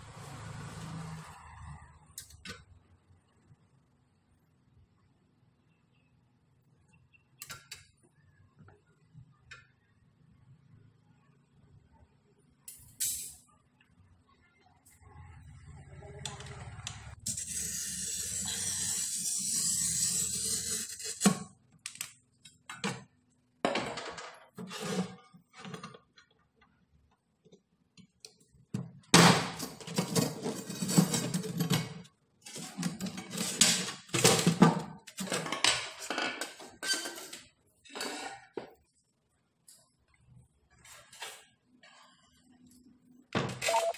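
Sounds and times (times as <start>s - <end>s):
glass cutter scoring stone: 17.3s - 21.3s.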